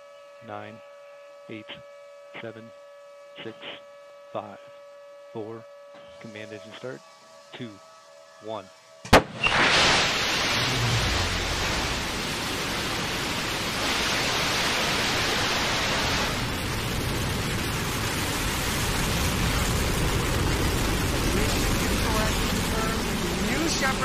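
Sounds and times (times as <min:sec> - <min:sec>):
rocket ignition crack: 0:09.1 - 0:23.6
rocket engine rushing roar: 0:09.1 - 0:24.0.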